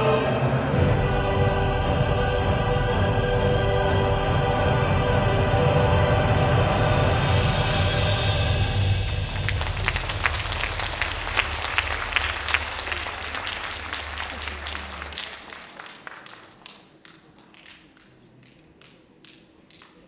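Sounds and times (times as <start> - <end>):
audience applauding: 8.8 - 20.0.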